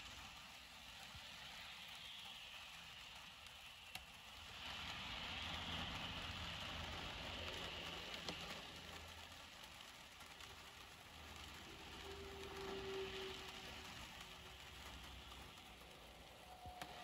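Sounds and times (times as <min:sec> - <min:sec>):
heavy rain hiss: 0:00.0 - 0:17.0
car driving past on wet road: 0:11.2 - 0:17.0.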